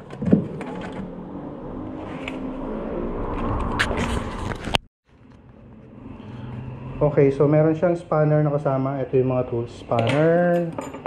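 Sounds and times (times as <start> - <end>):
steady vehicle rumble: 0.0 - 8.4.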